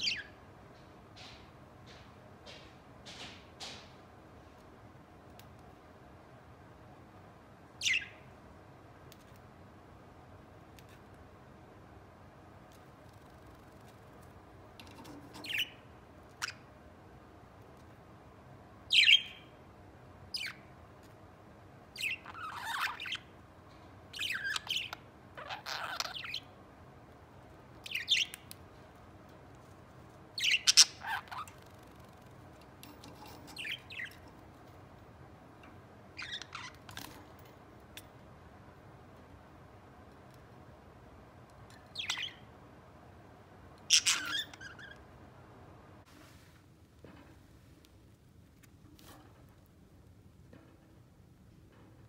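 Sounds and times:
budgerigars chirping and chattering: 0:22.0 - 0:23.2, 0:24.2 - 0:26.5, 0:30.4 - 0:31.5, 0:41.9 - 0:42.4, 0:43.9 - 0:45.0.

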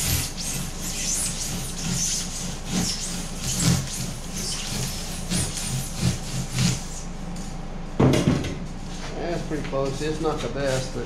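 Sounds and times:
handsaw cutting foam: 0:00.0 - 0:07.1.

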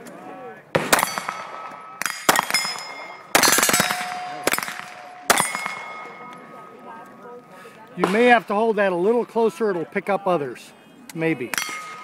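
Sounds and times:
bullets ringing on steel targets: 0:00.9 - 0:06.5, 0:11.5 - 0:12.0.

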